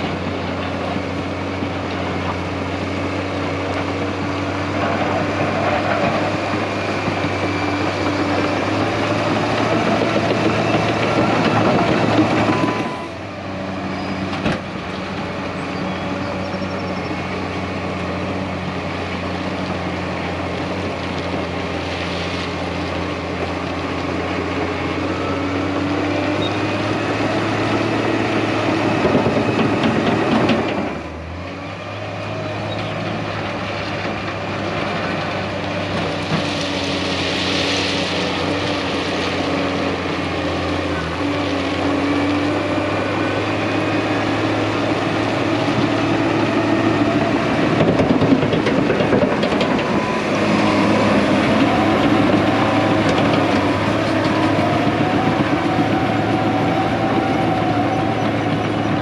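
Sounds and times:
diesel engine under load: 0:00.0 - 0:59.0
steel tracks clattering: 0:47.7 - 0:50.1.

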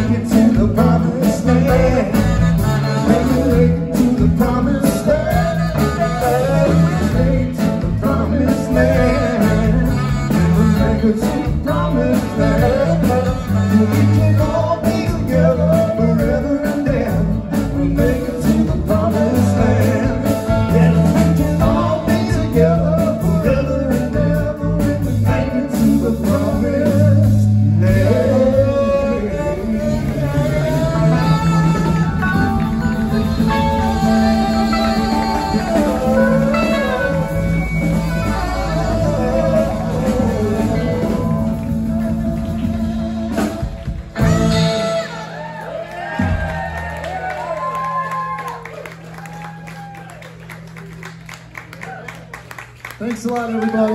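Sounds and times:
saxophone: 0:00.0 - 0:04.2, 0:05.1 - 0:07.8, 0:08.5 - 0:15.0, 0:25.2 - 0:45.8
keyboards: 0:00.0 - 0:45.4
drums: 0:00.0 - 0:52.8
bass: 0:00.0 - 0:53.9
electric guitar: 0:24.1 - 0:45.2.

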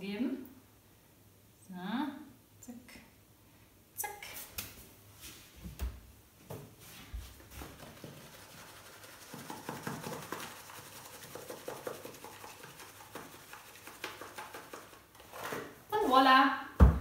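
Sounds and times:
shaker jar rattling: 0:07.6 - 0:15.1.

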